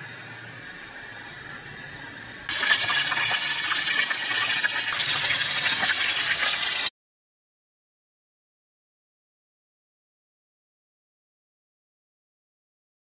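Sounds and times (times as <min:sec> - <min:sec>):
oil sizzling in deep fryer: 0:02.5 - 0:06.9.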